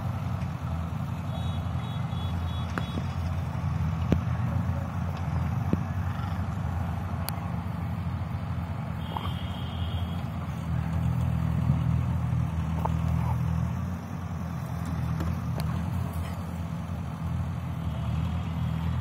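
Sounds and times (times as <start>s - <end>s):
motor vehicle engine hum: 0.0s - 19.0s.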